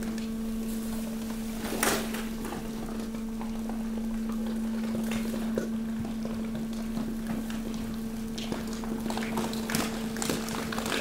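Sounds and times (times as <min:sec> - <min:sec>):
pump motor hum: 0:00.0 - 0:11.0
plastic and cardboard crackling: 0:08.4 - 0:11.0.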